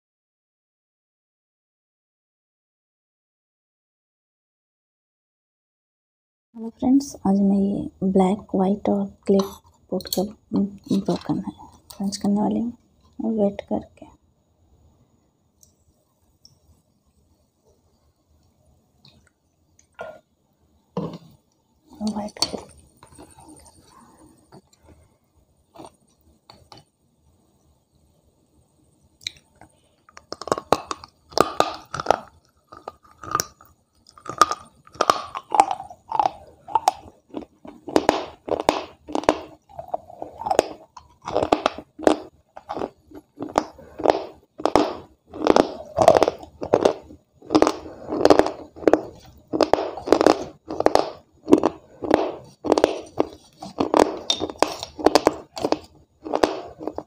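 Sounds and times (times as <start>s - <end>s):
crunching and chewing: 21.9s - 25.0s, 25.7s - 26.9s, 29.2s - 57.0s.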